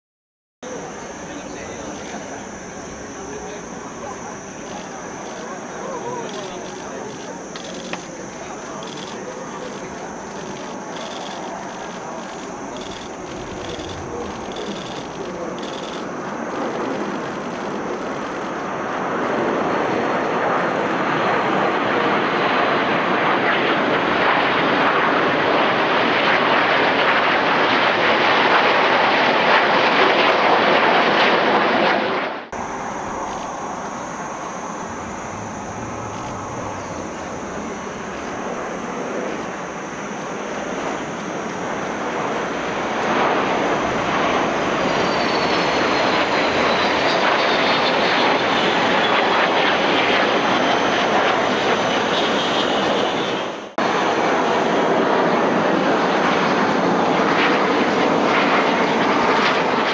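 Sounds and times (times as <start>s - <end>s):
jet engine whine falling in pitch: 0.6s - 59.9s
jet planes flying past: 0.6s - 59.9s.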